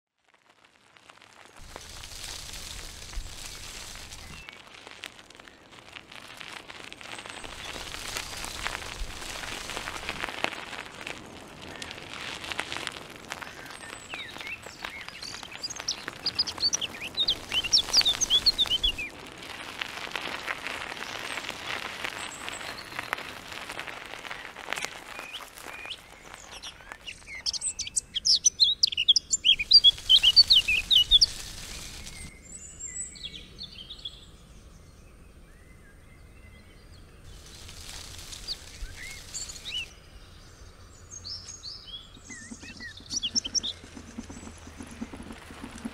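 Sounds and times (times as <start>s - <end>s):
noisy hiss: 0.7s - 28.2s, 29.3s - 32.3s, 37.2s - 45.9s
songbirds chirping: 11.1s - 19.2s, 19.8s - 45.9s.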